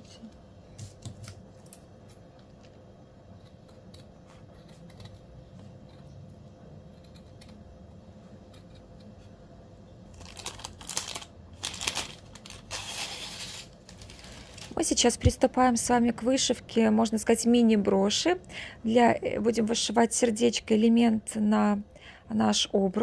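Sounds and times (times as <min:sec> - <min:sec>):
rustling and crinkling materials: 0:10.1 - 0:15.0.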